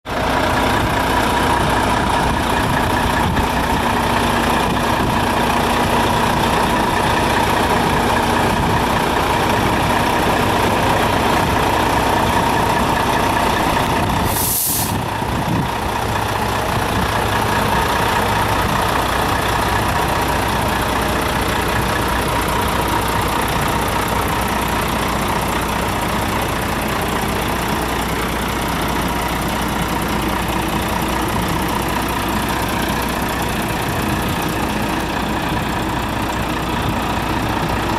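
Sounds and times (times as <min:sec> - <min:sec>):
diesel truck engine running: 0:00.1 - 0:37.9
air brake hiss: 0:14.2 - 0:15.0.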